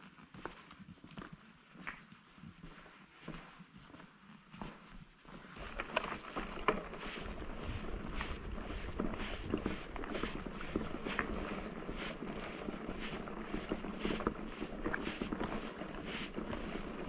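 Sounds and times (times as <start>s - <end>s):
rustling rumble: 5.5s - 17.0s
wind buffeting microphone: 6.8s - 15.6s.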